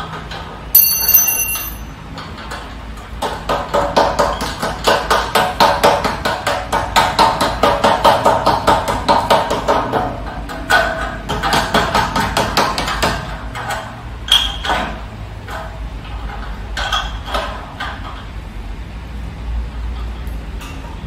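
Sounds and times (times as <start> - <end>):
hammer striking metal frame: 0.8 - 1.9.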